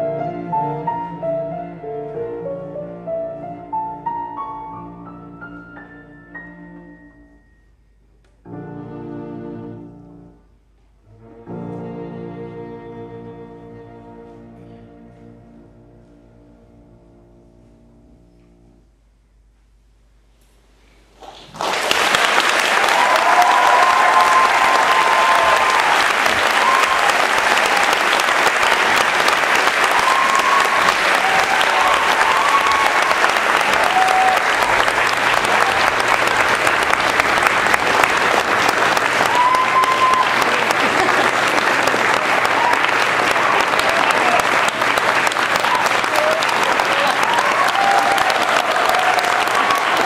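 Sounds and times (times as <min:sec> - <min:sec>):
audience applause: 0:21.2 - 0:50.0.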